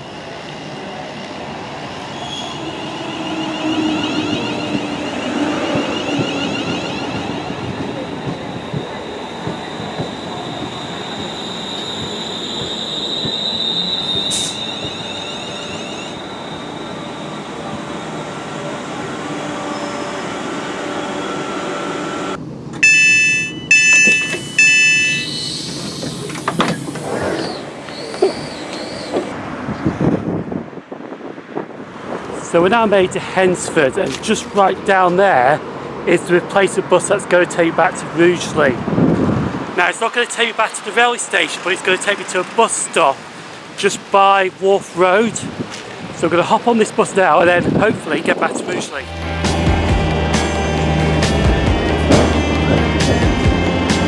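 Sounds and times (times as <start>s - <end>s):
train wheels rumbling on rails: 0.0s - 20.4s, 45.4s - 54.0s
electric train whine: 0.0s - 29.5s, 48.4s - 54.0s
electronic door chime tones: 22.8s - 25.7s.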